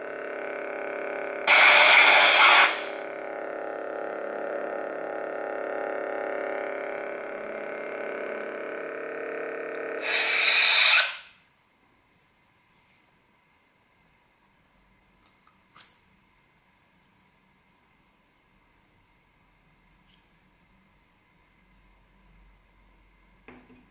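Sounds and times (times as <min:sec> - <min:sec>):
electronic hum: 0:00.0 - 0:11.4
loud hissing burst: 0:01.5 - 0:03.0, 0:10.0 - 0:11.3.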